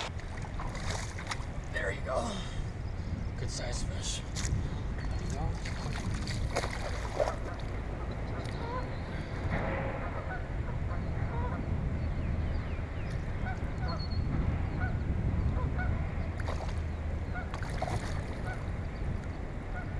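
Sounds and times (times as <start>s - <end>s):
water splashes: 0.0s - 1.8s, 4.3s - 8.8s, 16.3s - 18.8s
steady low rumble: 0.0s - 19.9s.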